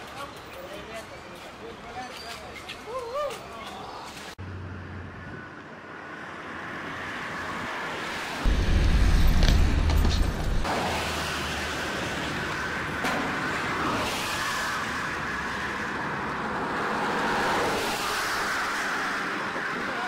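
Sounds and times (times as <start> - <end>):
passing cars rushing: 4.4 - 20.0.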